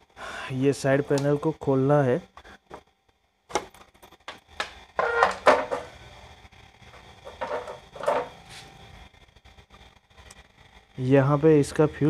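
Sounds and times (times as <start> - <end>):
plastic squeaks: 5.0 - 5.7.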